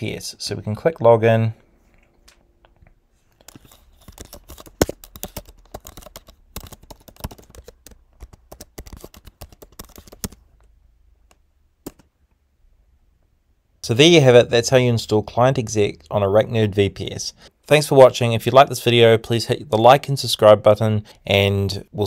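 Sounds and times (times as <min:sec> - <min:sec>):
computer keyboard typing: 0:03.4 - 0:10.7, 0:11.3 - 0:12.1.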